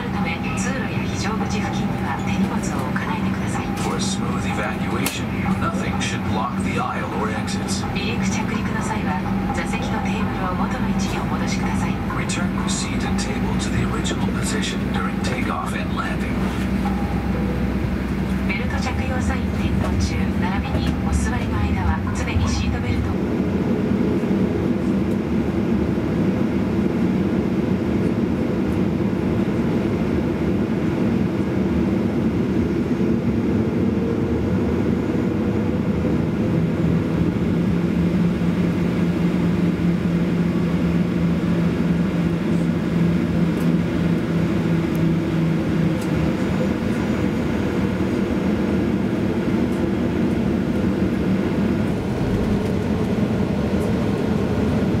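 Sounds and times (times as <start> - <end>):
low hum: 0.0 - 28.4
jet engine drone in cabin: 0.0 - 55.0.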